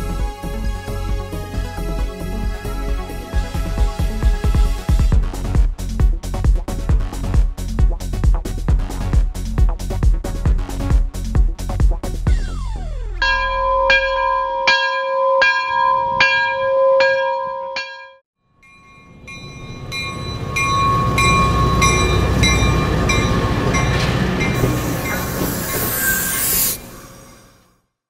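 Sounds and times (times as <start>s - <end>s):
ringing tone with sharp strikes: 13.2s - 24.6s
light rail train rumbling: 18.6s - 27.7s
train wheels clacking: 19.3s - 26.7s.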